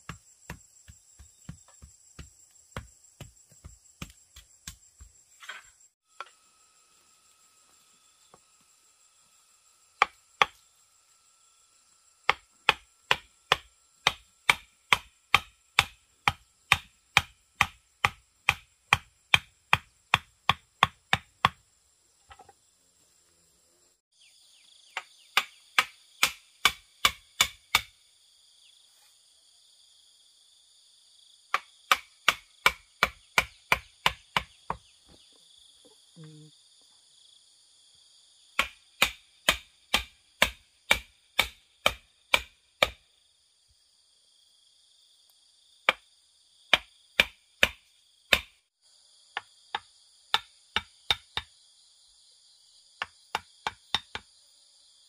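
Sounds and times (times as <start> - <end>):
insects chorus: 0.0 - 55.0
chopping strikes: 12.3 - 21.6, 25.0 - 27.9, 31.5 - 34.8, 38.6 - 43.0, 46.7 - 48.5.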